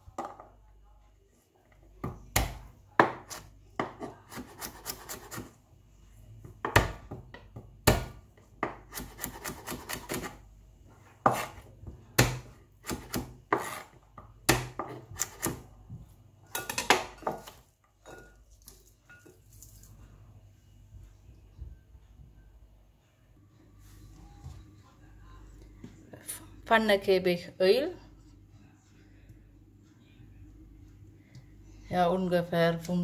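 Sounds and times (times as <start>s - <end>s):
knife chopping on wooden board: 6.6s - 10.4s, 11.2s - 11.6s, 12.2s - 13.9s, 14.5s - 15.6s.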